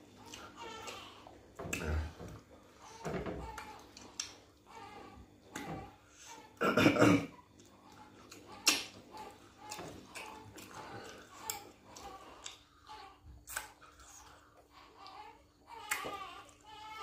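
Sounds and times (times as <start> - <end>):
wet chewing and lip smacks: 3.8 - 4.4, 7.6 - 12.6, 13.4 - 15.2
rough throat sound: 6.6 - 7.4.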